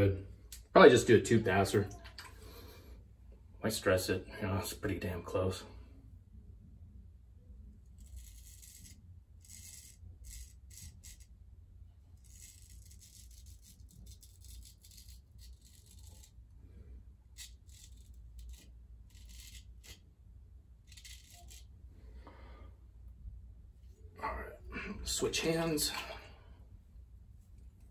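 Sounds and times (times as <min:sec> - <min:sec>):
razor scraping stubble: 0:07.9 - 0:11.3, 0:12.1 - 0:16.5, 0:17.3 - 0:20.1, 0:20.8 - 0:21.8.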